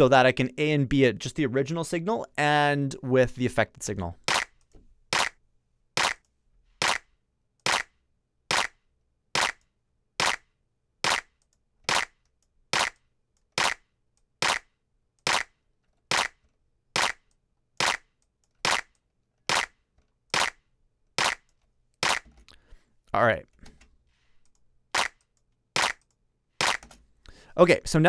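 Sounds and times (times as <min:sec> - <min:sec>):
electronic clap drum hits: 0:04.3 - 0:04.6, 0:05.2 - 0:05.4, 0:06.0 - 0:06.2, 0:07.7 - 0:07.9, 0:08.5 - 0:08.8, 0:09.4 - 0:09.6, 0:10.2 - 0:10.4, 0:11.1 - 0:11.3, 0:11.9 - 0:12.1, 0:12.8 - 0:13.0, 0:13.6 - 0:13.8, 0:15.3 - 0:15.5, 0:16.1 - 0:16.4, 0:17.0 - 0:17.2, 0:17.8 - 0:18.1, 0:18.7 - 0:18.9, 0:19.5 - 0:19.8, 0:21.2 - 0:21.4, 0:25.0 - 0:25.2, 0:25.8 - 0:26.0, 0:26.6 - 0:26.8.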